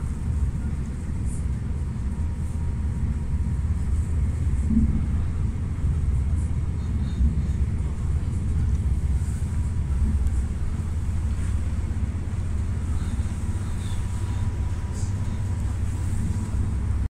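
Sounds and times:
low rumble of moving train: 0.0s - 17.0s.

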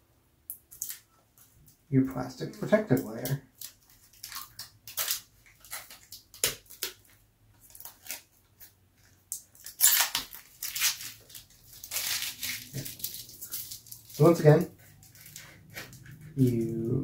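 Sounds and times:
plastic film peeling and crinkling: 2.4s - 17.0s.

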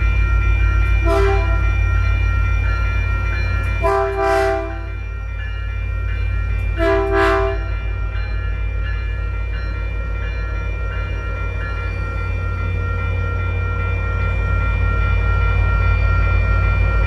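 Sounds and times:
low rumble of passing train: 0.0s - 17.0s
diesel locomotive horn: 1.0s - 1.8s, 3.8s - 5.0s, 6.8s - 7.8s.

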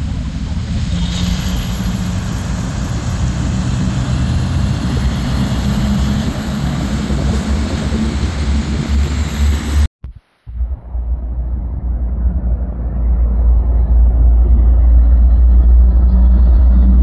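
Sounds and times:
truck engine rumbling: 0.0s - 9.9s, 10.5s - 17.0s
tyre and road noise: 0.0s - 9.9s.

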